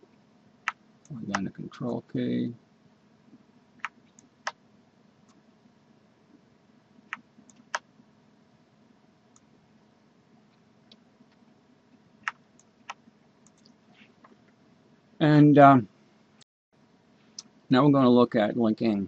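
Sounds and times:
faint room hum: 0.0s - 19.0s
computer mouse clicks: 3.8s - 4.6s, 7.1s - 7.9s, 12.2s - 14.4s.

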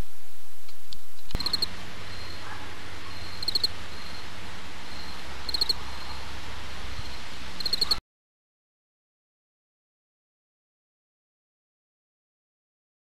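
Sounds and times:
camera hiss and hum: 0.0s - 8.0s
insect chirping: 0.1s - 6.3s, 7.0s - 8.0s.

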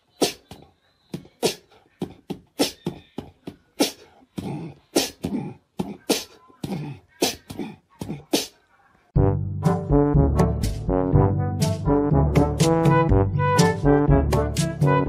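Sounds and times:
cat hissing and spitting: 1.4s - 1.8s, 3.8s - 5.4s, 6.0s - 8.6s.

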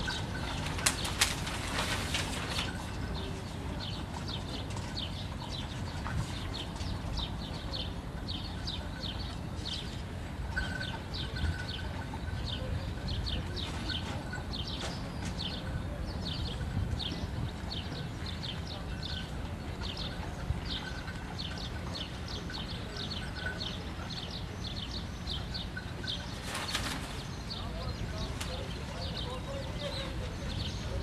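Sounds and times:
small birds chirping: 2.5s - 31.0s.

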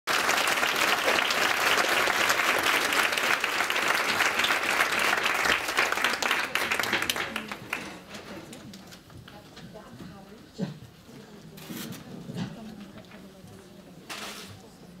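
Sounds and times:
audience applauding: 0.1s - 8.0s.

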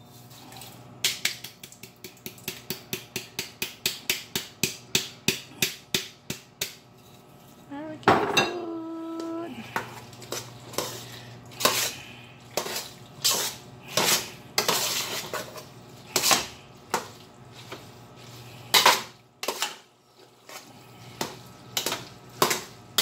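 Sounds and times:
metal spoon scraping a pot: 9.8s - 12.0s, 12.6s - 17.1s, 18.6s - 19.8s.

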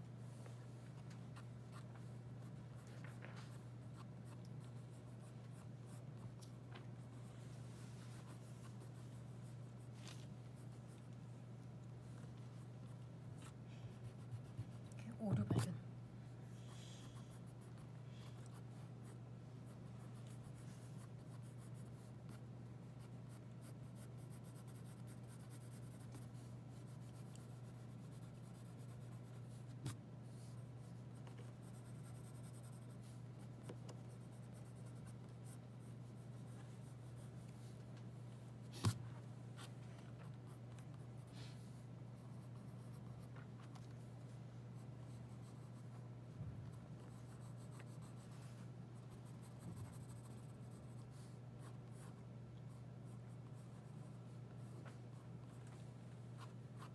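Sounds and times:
pencil scratching on paper: 1.3s - 6.3s, 13.9s - 15.8s, 16.7s - 37.7s, 46.8s - 55.2s.

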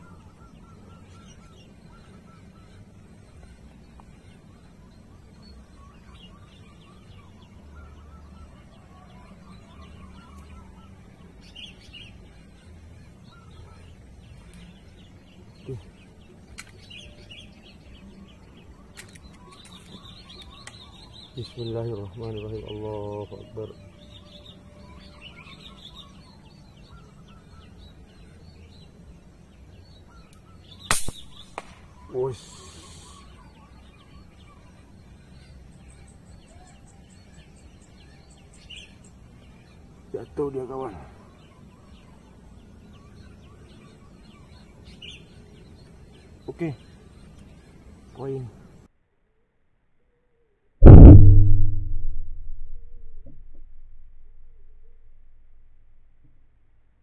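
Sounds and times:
small birds chirping: 0.0s - 48.9s
low steady rumble: 50.8s - 56.7s.

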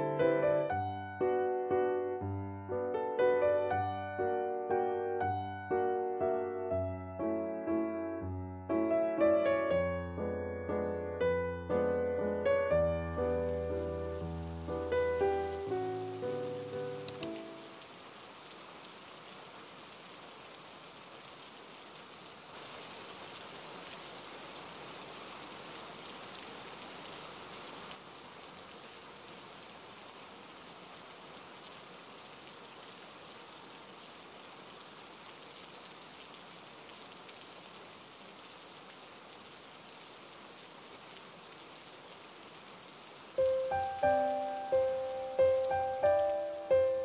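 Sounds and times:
falling water patter: 12.5s - 47.0s.

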